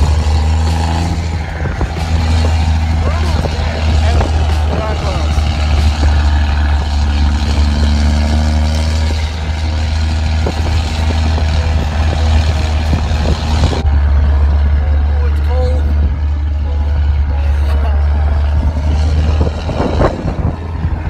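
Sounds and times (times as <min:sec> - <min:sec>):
vehicle engine and road rumble: 0:00.0 - 0:21.0.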